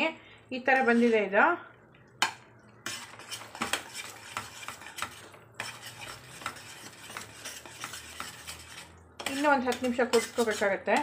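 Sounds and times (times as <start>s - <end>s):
metal spatula scraping a metal pan: 0.7s - 1.4s, 2.8s - 11.0s.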